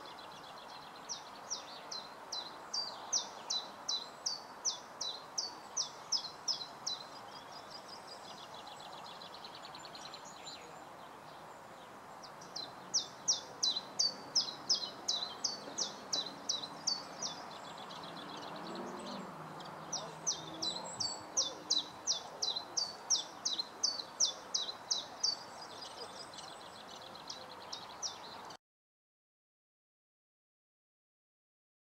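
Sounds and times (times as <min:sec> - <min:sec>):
songbird singing: 0:00.0 - 0:28.6.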